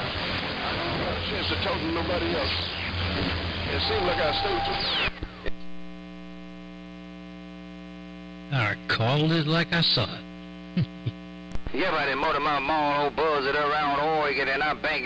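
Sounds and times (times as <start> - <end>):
electrical hum over radio: 0.0 - 15.0
speech over radio: 3.7 - 5.6, 8.5 - 10.2, 11.7 - 15.0.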